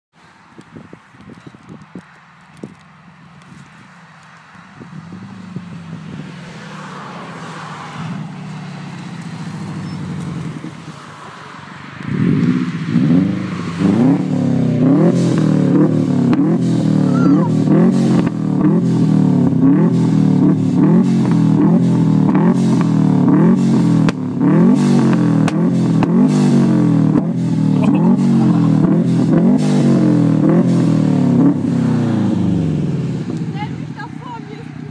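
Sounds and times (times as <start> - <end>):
car engine revving: 2.8 - 34.7
exhaust bangs and pops: 12.0 - 33.7.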